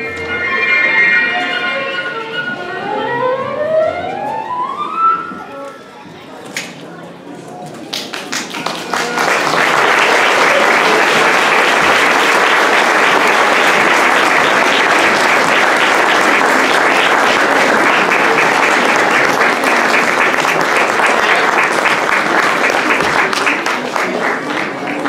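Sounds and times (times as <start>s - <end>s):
audience applauding: 7.8s - 25.0s.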